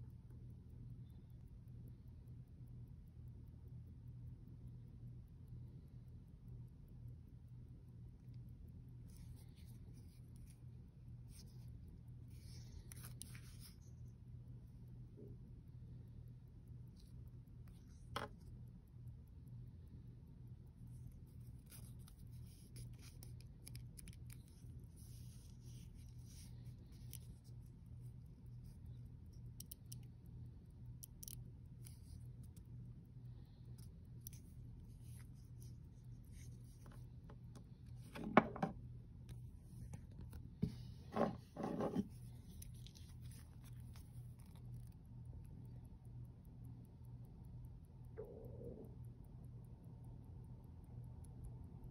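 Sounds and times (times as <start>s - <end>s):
low steady hum: 0.0s - 51.9s
small clicks: 7.2s - 40.7s, 42.0s - 49.4s
fingers scraping watch strap: 21.1s - 27.9s
watch knocking on wooden table: 38.2s - 38.8s.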